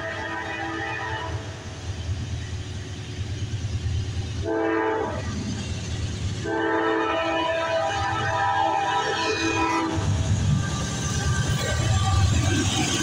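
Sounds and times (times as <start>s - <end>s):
locomotive air horn blasts: 0.0s - 1.4s, 4.4s - 5.2s, 6.4s - 10.0s
low rumble of locomotives: 0.0s - 13.0s.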